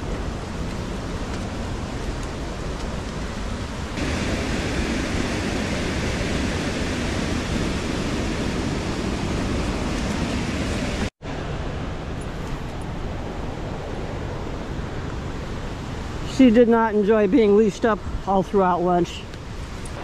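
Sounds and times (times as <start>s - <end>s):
waterfall rushing: 3.4s - 11.1s.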